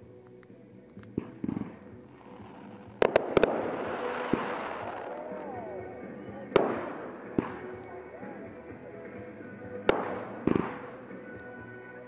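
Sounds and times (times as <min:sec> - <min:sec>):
steady music: 0:00.0 - 0:12.0
firework shells bursting: 0:01.1 - 0:05.3.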